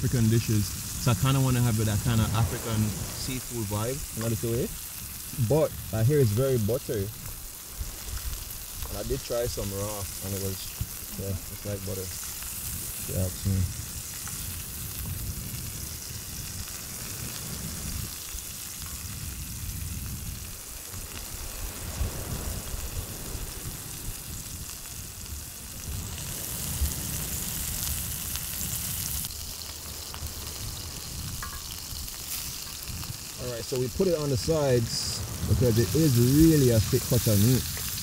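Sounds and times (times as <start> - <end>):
low rumble: 0.0 - 6.4
fish sizzling in oil: 0.0 - 38.0.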